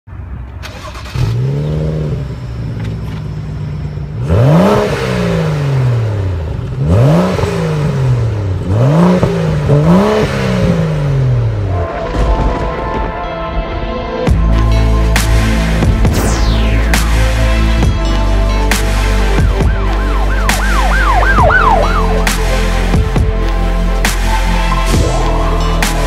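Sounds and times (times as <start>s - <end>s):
car engine revving: 0.6s - 11.7s, 15.7s - 24.8s.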